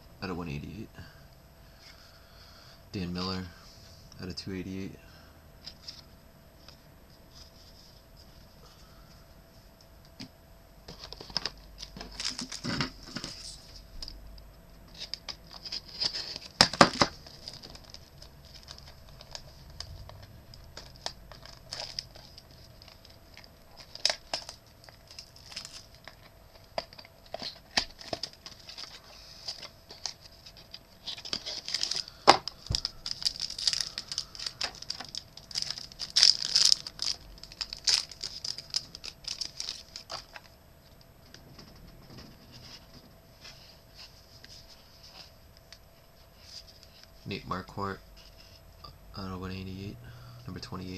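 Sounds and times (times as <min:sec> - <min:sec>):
card pack wrappers tearing: 0:11.0 - 0:13.4, 0:14.9 - 0:40.5
cards rustling and clicking: 0:14.9 - 0:40.5.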